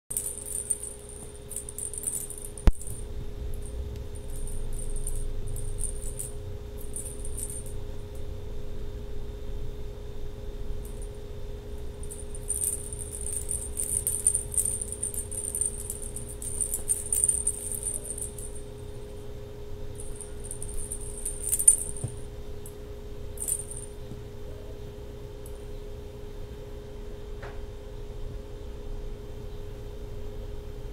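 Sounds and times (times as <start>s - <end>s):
small bells jingling: 0.0s - 8.0s, 11.9s - 19.3s, 19.9s - 24.0s
steady low hum: 0.1s - 30.9s.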